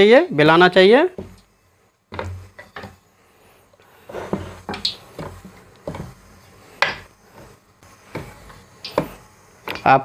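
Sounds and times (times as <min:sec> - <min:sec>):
rolling pin scraping dough: 0:01.0 - 0:09.8
rolling pin knocking: 0:01.2 - 0:01.4, 0:02.1 - 0:03.0, 0:04.1 - 0:06.2.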